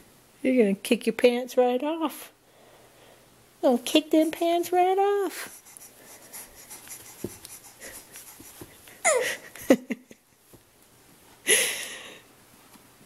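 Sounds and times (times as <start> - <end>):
baby breathy vocal sounds: 5.3 - 9.5
baby squealing: 9.0 - 9.3.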